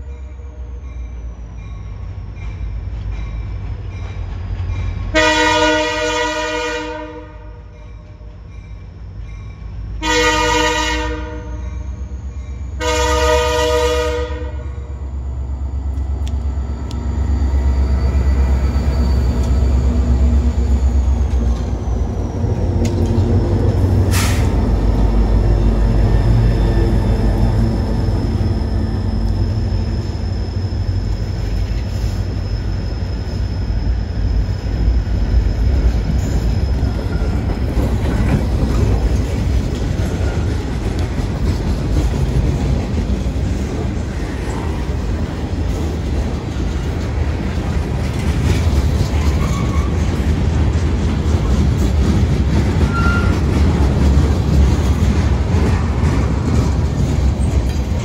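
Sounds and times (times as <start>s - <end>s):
freight train rumbling past: 0.0s - 58.0s
wheel squeals: 16.6s - 22.4s, 48.5s - 50.2s, 52.8s - 53.8s
wheels clattering over rail joints: 45.2s - 58.0s.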